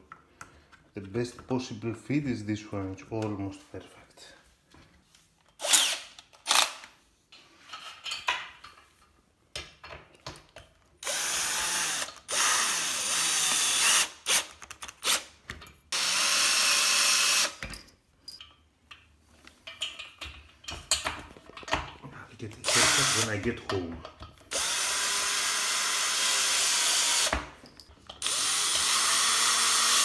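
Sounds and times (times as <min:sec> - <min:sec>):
cordless drill driving bolts: 0:05.6 - 0:06.8, 0:11.0 - 0:15.3, 0:15.9 - 0:17.6, 0:22.6 - 0:23.4, 0:24.5 - 0:27.5, 0:28.1 - 0:30.0.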